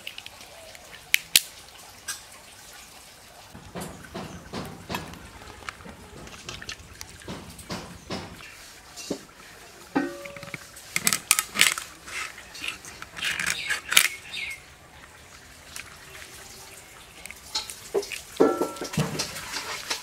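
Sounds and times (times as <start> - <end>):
metal utensils and dishes clanking: 3.6 - 14.2, 17.3 - 20.0.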